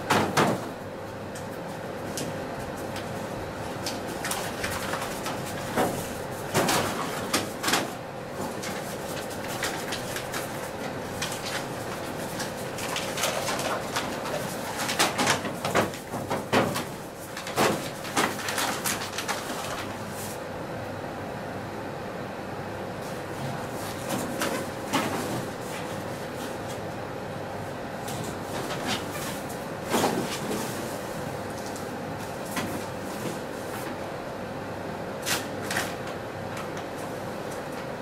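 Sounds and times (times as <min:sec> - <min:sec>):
paper bags rustling: 0:02.6 - 0:20.4, 0:28.0 - 0:34.0.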